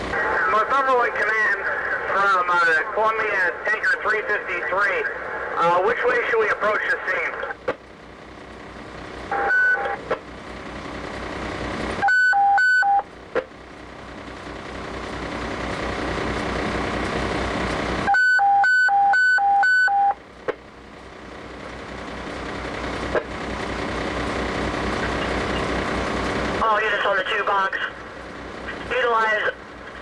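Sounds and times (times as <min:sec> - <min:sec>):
fire truck engine running: 0:00.0 - 0:30.0
radio alert tones high and low: 0:09.3 - 0:10.0, 0:12.0 - 0:13.1, 0:18.1 - 0:20.2.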